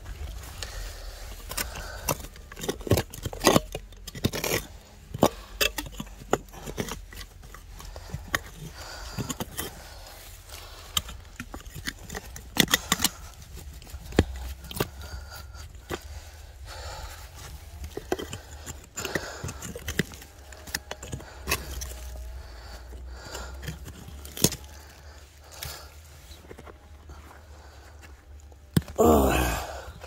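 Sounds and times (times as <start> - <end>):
tool scraping and knocking stones: 0.0 - 30.0.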